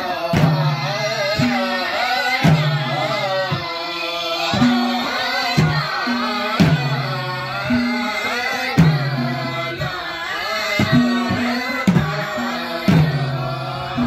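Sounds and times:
men singing together: 0:00.0 - 0:14.0
hand drums with deep boom: 0:04.5 - 0:08.1, 0:08.7 - 0:10.0, 0:10.8 - 0:14.0.

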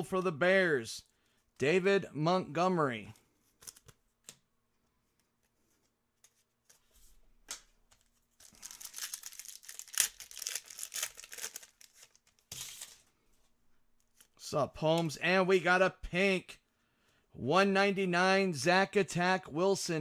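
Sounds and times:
foil pack tearing and crinkling: 0:08.4 - 0:13.0.

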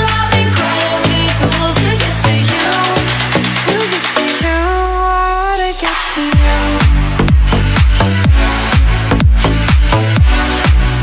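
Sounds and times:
house music: 0:00.0 - 0:11.0
synth bass and chords: 0:00.0 - 0:11.0
kick drum: 0:06.3 - 0:11.0.

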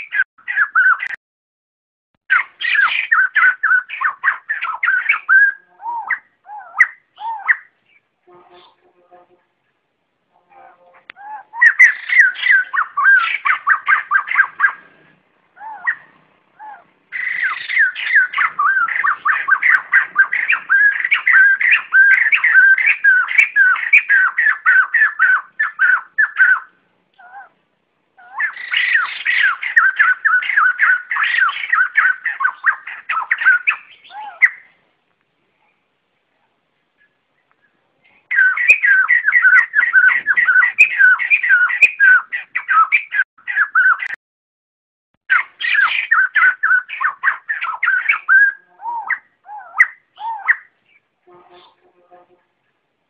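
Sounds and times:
laughingthrush flock calls: 0:10.6 - 0:26.7, 0:28.2 - 0:34.6, 0:38.3 - 0:44.1, 0:45.3 - 0:50.6.

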